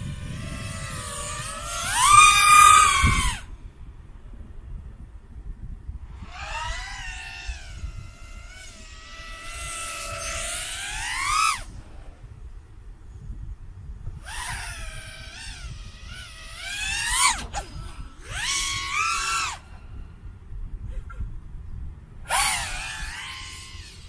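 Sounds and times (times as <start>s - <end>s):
quadcopter propellers whining: 0.0s - 3.6s, 6.0s - 12.9s, 14.2s - 20.2s, 22.2s - 24.0s.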